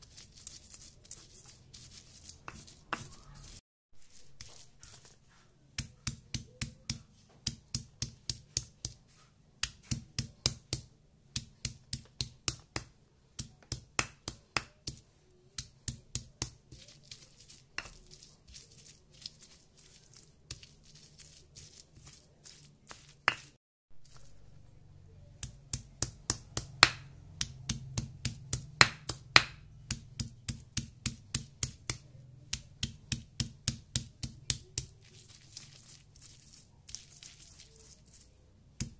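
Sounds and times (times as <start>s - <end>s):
stone pestle pounding in mortar: 25.4s - 34.9s.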